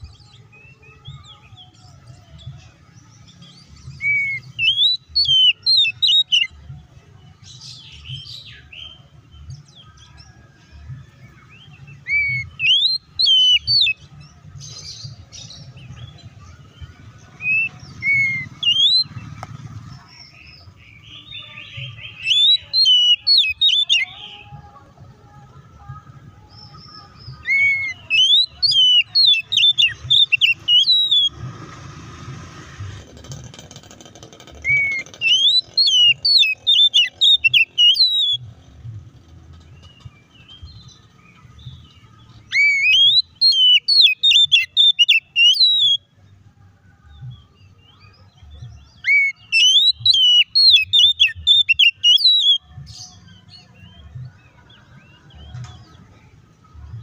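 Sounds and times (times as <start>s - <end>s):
magpie-robin whistled song: 0.0s - 6.6s, 11.1s - 24.6s, 26.5s - 31.4s, 34.6s - 38.6s, 39.8s - 46.4s, 47.2s - 57.0s.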